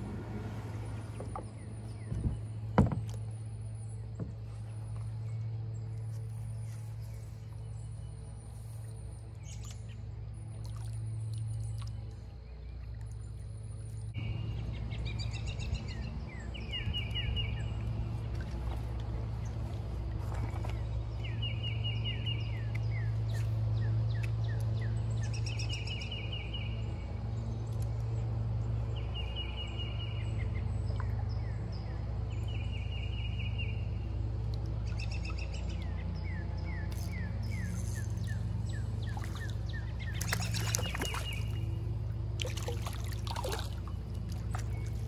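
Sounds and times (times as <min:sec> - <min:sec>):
steady low hum: 0:00.0 - 0:45.0
fishing reel clicking and rustling: 0:36.9 - 0:38.6.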